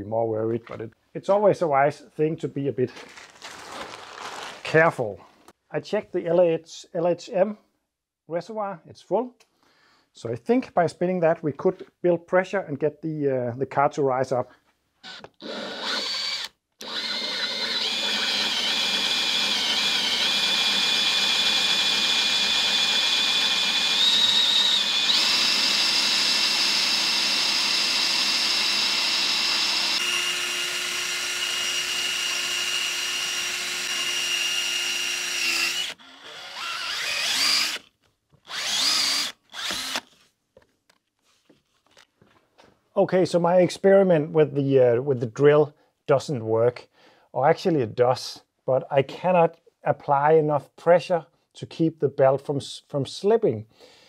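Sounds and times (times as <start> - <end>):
cordless drill whining: 15.0 - 40.2.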